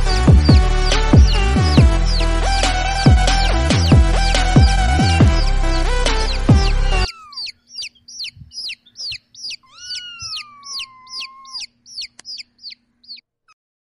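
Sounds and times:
chick peeping: 0:00.0 - 0:13.2
drawn-out low chick call: 0:00.0 - 0:13.2.

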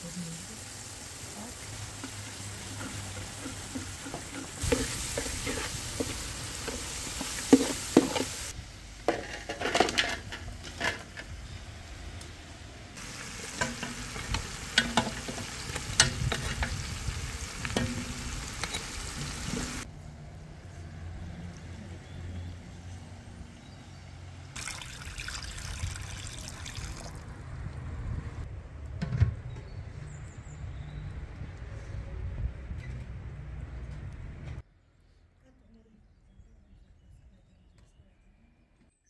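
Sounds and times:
food sizzling in a metal pot: 0:00.0 - 0:08.6, 0:13.0 - 0:19.9.

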